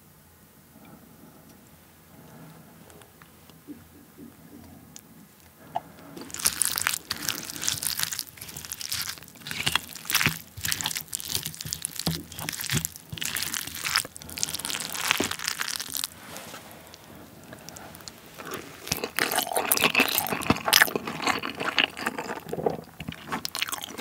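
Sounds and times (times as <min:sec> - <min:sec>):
wet sticky squishing of rice: 0:06.2 - 0:24.0.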